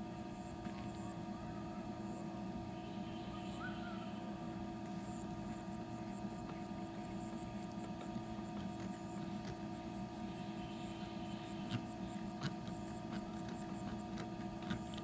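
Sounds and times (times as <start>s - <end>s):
steady mechanical hum: 0.0s - 15.0s
faint chirp: 2.7s - 4.4s, 10.1s - 12.2s.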